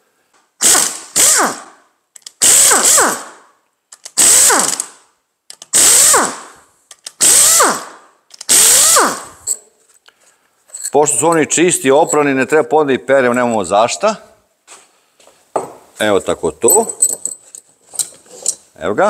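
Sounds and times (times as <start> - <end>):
cordless drill motor running: 4.2 - 4.8, 7.2 - 7.8, 8.5 - 9.4.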